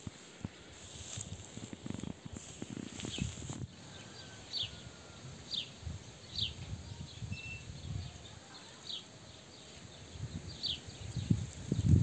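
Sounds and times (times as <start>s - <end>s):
soft low rustling: 0.0s - 3.7s.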